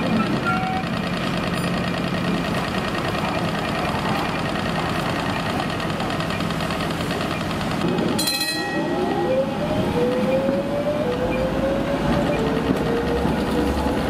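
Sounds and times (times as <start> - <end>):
tram rumbling on rails: 0.0 - 14.0.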